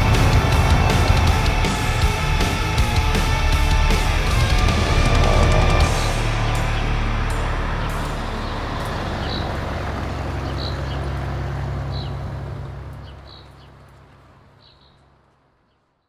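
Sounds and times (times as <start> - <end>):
hovercraft engine humming: 0.0 - 14.6
bird chirping: 6.0 - 12.3, 12.9 - 16.0.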